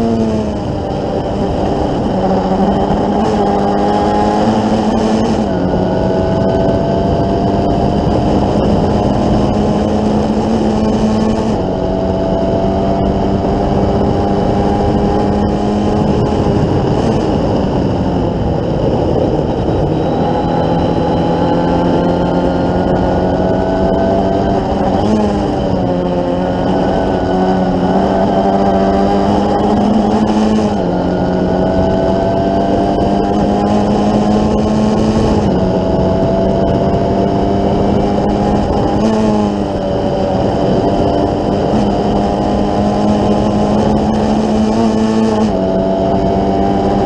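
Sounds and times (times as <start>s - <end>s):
race car engine at high revs: 0.0s - 47.0s.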